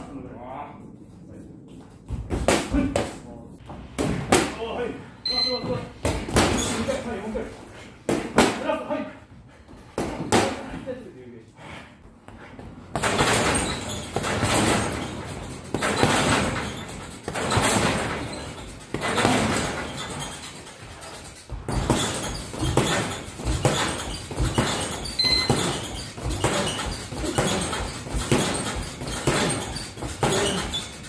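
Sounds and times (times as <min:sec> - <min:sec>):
gloves punching heavy bag: 0:12.9 - 0:31.0.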